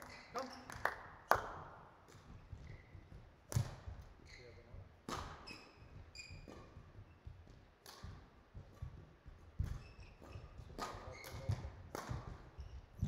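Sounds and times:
footsteps on court floor: 0:02.0 - 0:13.0
rackets hitting shuttlecock: 0:03.5 - 0:03.8, 0:05.0 - 0:05.7, 0:07.8 - 0:13.0.

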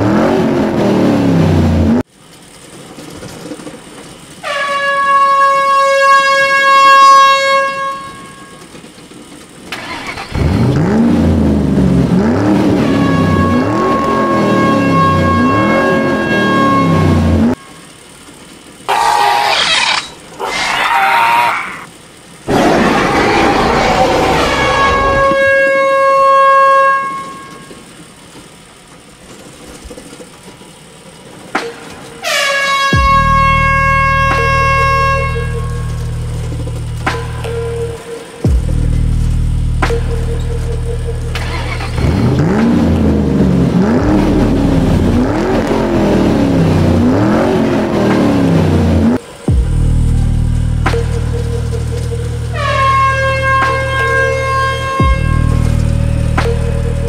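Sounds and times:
truck engine revving: 0:00.0 - 0:02.1, 0:09.7 - 0:17.6, 0:18.6 - 0:25.8, 0:32.9 - 0:57.0
truck air horn blasts: 0:04.4 - 0:08.8, 0:12.3 - 0:18.0, 0:24.1 - 0:27.9, 0:31.6 - 0:39.0, 0:39.8 - 0:42.8, 0:52.4 - 0:57.0
low rumble: 0:48.6 - 0:57.0.

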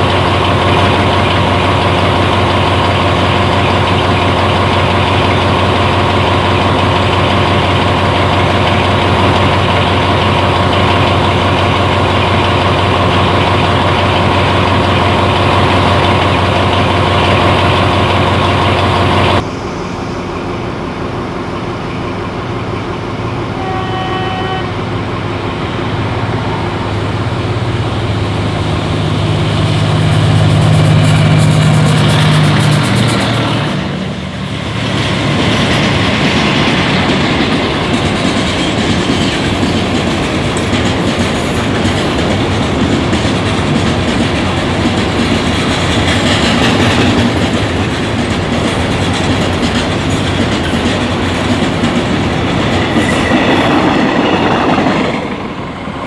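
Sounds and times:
train wheels clacking over rail joints: 0:00.0 - 0:19.4, 0:29.7 - 0:55.8
locomotive engine rumble: 0:00.0 - 0:56.0
locomotive horn blast: 0:23.5 - 0:25.1.

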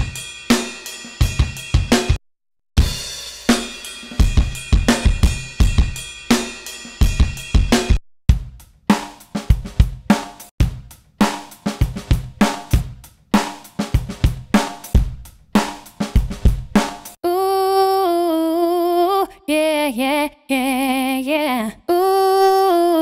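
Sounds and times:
drum kit loop: 0:00.0 - 0:02.2, 0:02.8 - 0:17.2.

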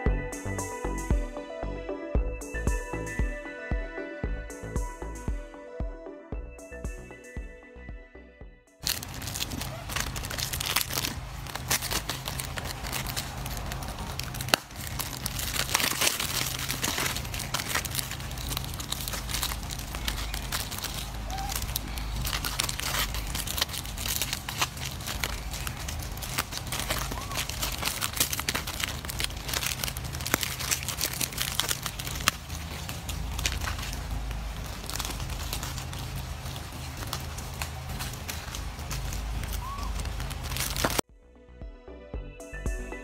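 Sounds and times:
plastic wrappers crinkling: 0:08.8 - 0:41.0.

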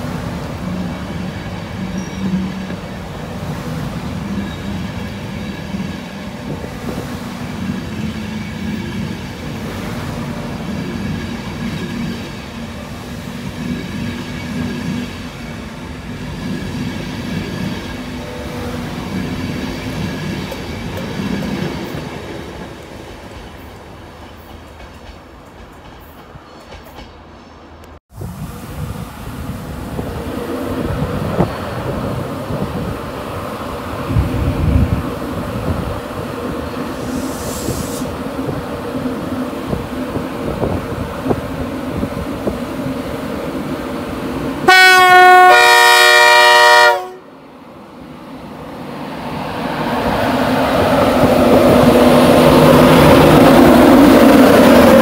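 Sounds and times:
train wheels rumbling on rails: 0:00.0 - 0:47.2, 0:48.5 - 0:55.0.

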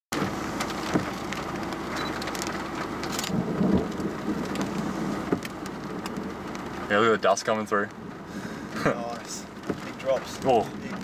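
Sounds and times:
raindrops tapping on windscreen: 0:00.1 - 0:11.0
low rumble: 0:02.0 - 0:07.2.

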